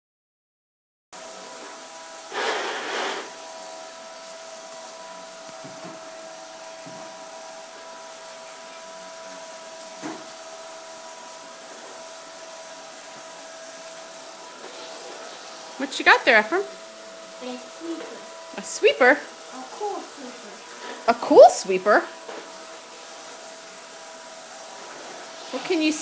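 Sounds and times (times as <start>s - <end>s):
sweeper brush roll whining: 2.3s - 3.4s.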